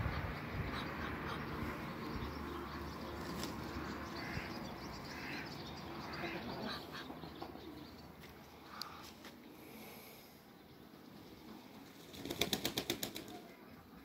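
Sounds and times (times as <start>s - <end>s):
ducks calling: 0.0s - 9.1s.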